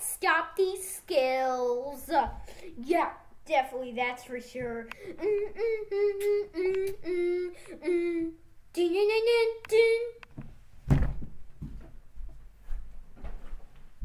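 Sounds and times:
child's sing-song voice: 0:00.0 - 0:10.3
thump: 0:10.8 - 0:11.4.

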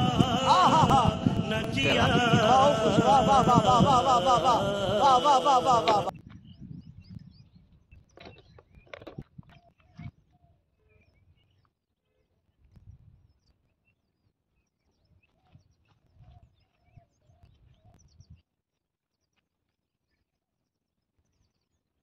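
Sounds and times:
wind rumbling on microphone: 0:00.0 - 0:10.2, 0:12.6 - 0:13.4.

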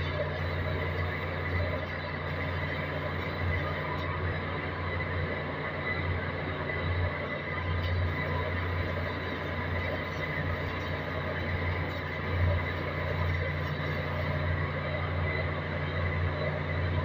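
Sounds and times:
low machinery hum: 0:00.0 - 0:17.0.

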